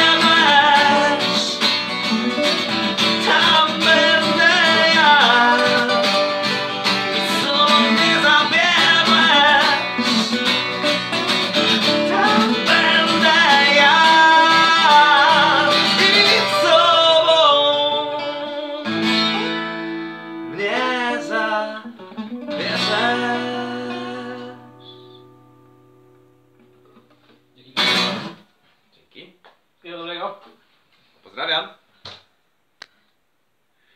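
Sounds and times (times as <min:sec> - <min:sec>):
man singing: 0:00.0 - 0:10.7, 0:11.6 - 0:19.6, 0:20.5 - 0:25.0
acoustic guitars strummed: 0:00.0 - 0:28.4.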